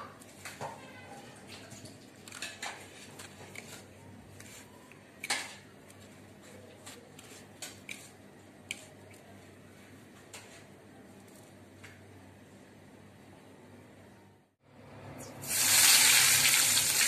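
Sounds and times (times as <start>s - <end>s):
bread crumbs rustling: 5.9s - 9.6s.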